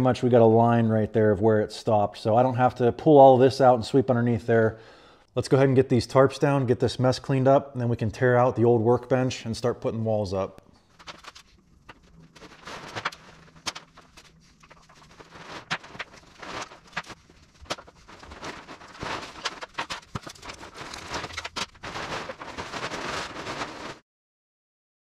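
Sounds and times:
plastic tarps rustling and crackling: 10.8s - 24.0s.

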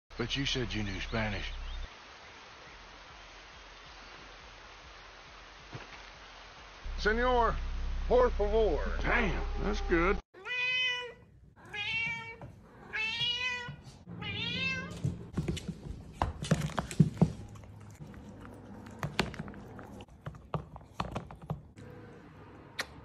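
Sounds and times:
cat meowing: 9.3s - 15.1s.

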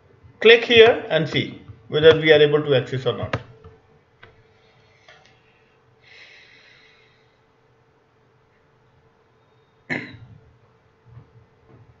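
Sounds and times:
faint steady hum: 0.0s - 12.0s
person breathing near microphone: 4.4s - 7.6s.

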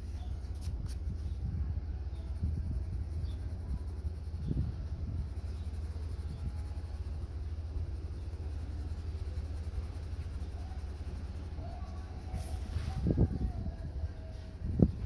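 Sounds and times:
low steady rumble: 0.0s - 15.0s
pencil shading on paper: 2.2s - 12.8s.

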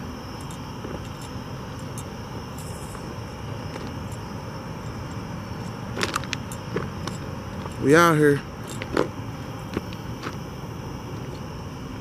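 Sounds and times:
outdoor night hiss and hum: 0.0s - 12.0s
footsteps on railroad ballast: 2.4s - 4.3s, 4.9s - 10.5s.

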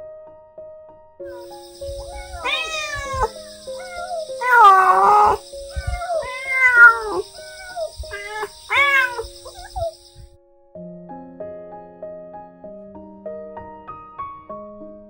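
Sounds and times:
cat meowing: 1.3s - 10.3s.

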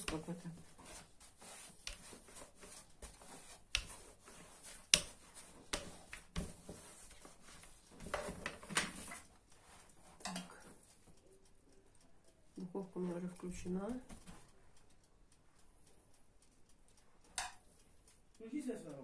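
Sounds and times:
rolling pin rolling dough: 0.0s - 11.1s.

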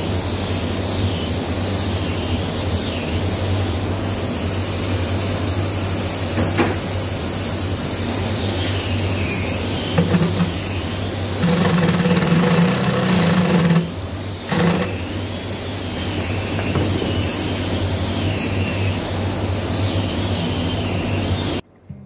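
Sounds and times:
cordless drill driving screws: 11.4s - 13.9s, 14.5s - 15.0s.

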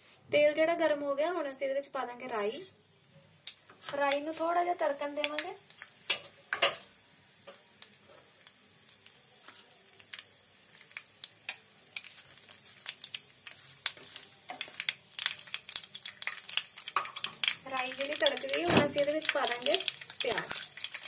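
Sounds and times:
faint oil sizzle: 2.2s - 2.9s, 3.5s - 21.0s
seeds popping in hot oil: 3.4s - 21.0s
wooden spatula stirring: 12.0s - 18.4s.

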